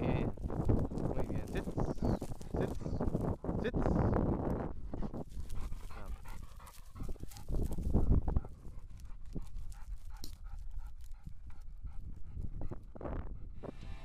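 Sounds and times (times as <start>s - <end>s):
dry stubble rustling: 0.0s - 3.4s, 5.1s - 11.7s
dog panting: 4.9s - 13.6s.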